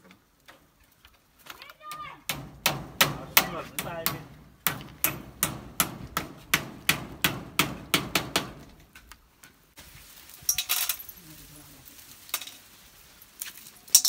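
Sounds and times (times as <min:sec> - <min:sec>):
hammer driving nail into wood: 0:02.3 - 0:08.8.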